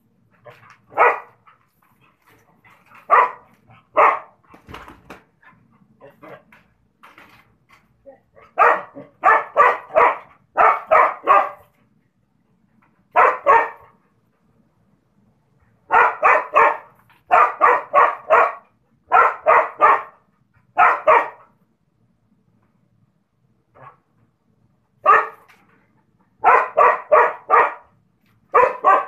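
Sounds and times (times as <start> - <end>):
dog barking: 0.9 - 1.4, 3.0 - 4.4, 8.4 - 11.7, 13.1 - 14.0, 15.9 - 21.6, 25.0 - 25.5, 26.4 - 27.9, 28.5 - 29.0.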